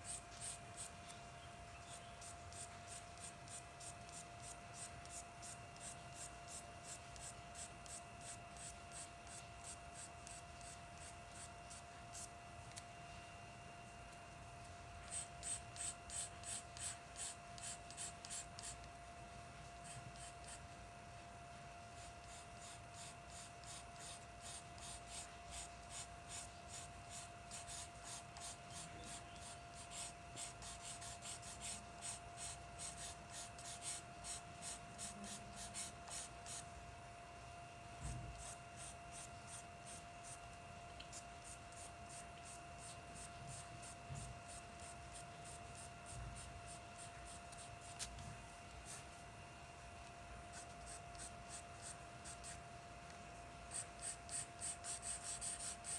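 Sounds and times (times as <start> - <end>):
pencil scratching on paper: 0.0 - 0.9, 1.9 - 12.3, 15.1 - 18.8, 22.0 - 36.6, 38.3 - 40.4, 41.1 - 48.1, 50.5 - 52.6, 53.7 - 55.9
faint steady hum: 0.0 - 55.9.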